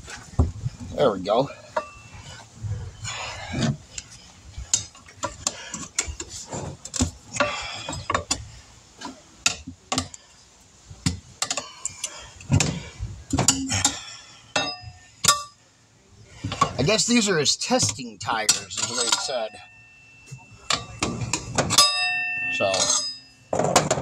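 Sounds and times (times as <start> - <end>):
tire irons clinking on wheel rim: 0.8 - 2.4, 11.1 - 15.6, 16.4 - 24.0.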